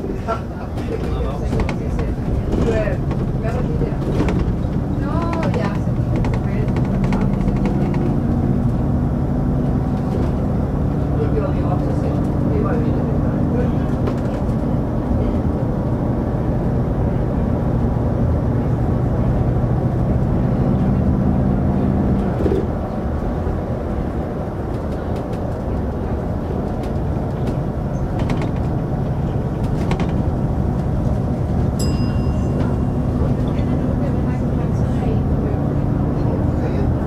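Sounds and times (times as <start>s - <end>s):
bus engine hum: 0.0s - 37.0s
road and tyre rumble: 0.0s - 37.0s.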